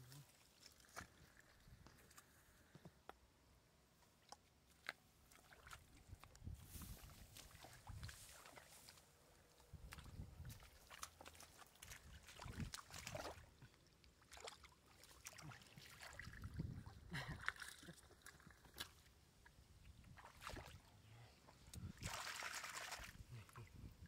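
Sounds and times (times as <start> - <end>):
sloshing in muddy water: 5.2 - 24.0.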